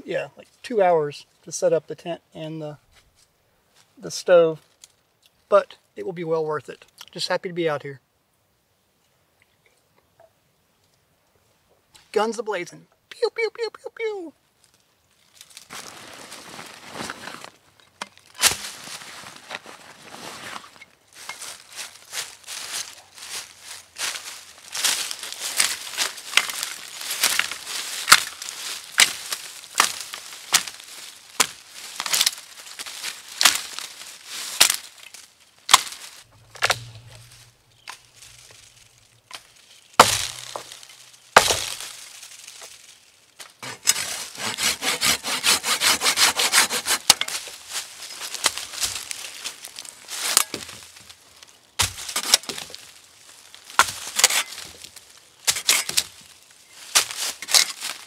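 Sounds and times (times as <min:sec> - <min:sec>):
axe chopping branch: 0:18.2 - 0:18.8, 0:25.6 - 0:30.8, 0:31.4 - 0:32.4, 0:33.4 - 0:33.9, 0:34.6 - 0:34.9, 0:35.7 - 0:38.6, 0:39.3 - 0:42.0, 0:43.6 - 0:47.4, 0:50.2 - 0:50.8, 0:51.8 - 0:52.8, 0:53.7 - 0:54.8, 0:55.4 - 0:56.2, 0:56.9 - 0:58.0
dense crackling: 0:36.1 - 0:41.2.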